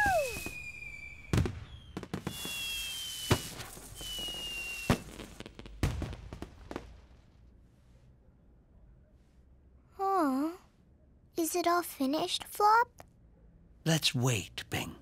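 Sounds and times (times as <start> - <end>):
whistling rockets: 0.0 - 6.9
firework crackling: 0.0 - 7.1
firework bangs and pops: 0.0 - 7.2.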